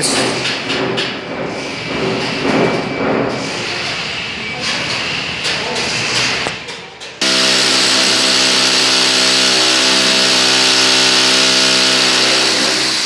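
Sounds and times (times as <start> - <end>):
power drill boring into wall: 7.2 - 13.0.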